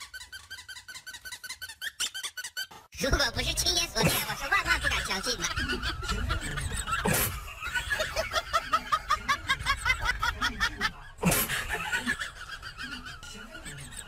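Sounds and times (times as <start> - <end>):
person laughing: 4.0 - 14.0.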